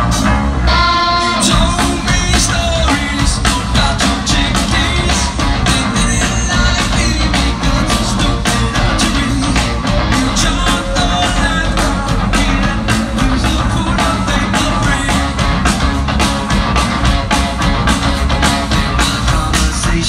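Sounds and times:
person singing: 0.0 - 15.8, 18.7 - 20.0
live rock band playing: 0.0 - 20.0.

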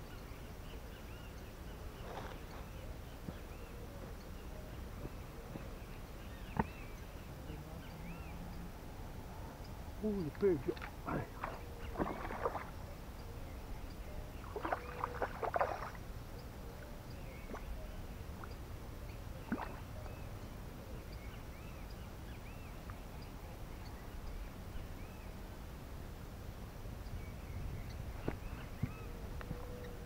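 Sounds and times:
water splashing and sloshing: 10.2 - 12.9, 14.3 - 16.1, 17.3 - 18.6, 19.4 - 20.2
wind rumble on microphone: 26.6 - 30.0.

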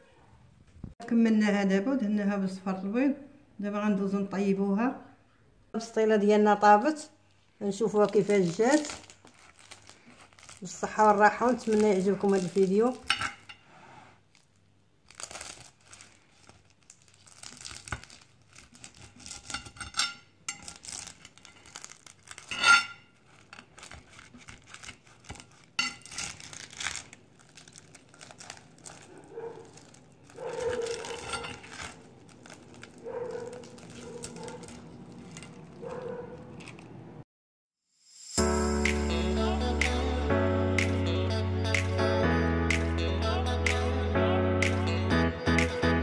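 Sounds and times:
crisp pastry crackling and tearing: 7.7 - 37.0.

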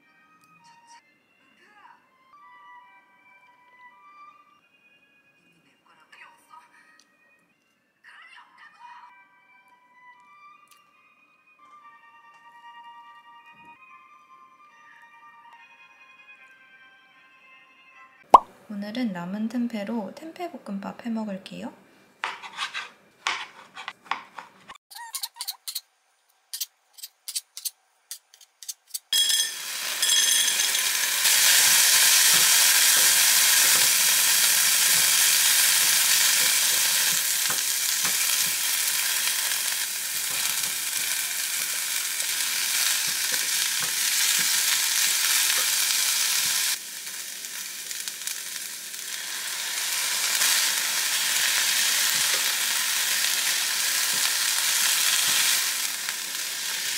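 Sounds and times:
vegetables sizzling in a pan: 29.2 - 56.9.

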